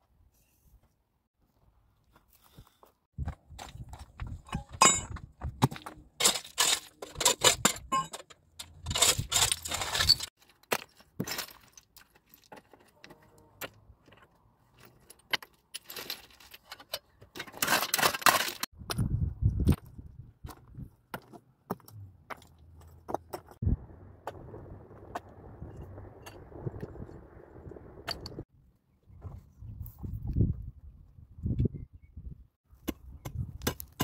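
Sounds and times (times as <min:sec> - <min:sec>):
stone chips clinking and scraping: 0:05.7 - 0:12.9.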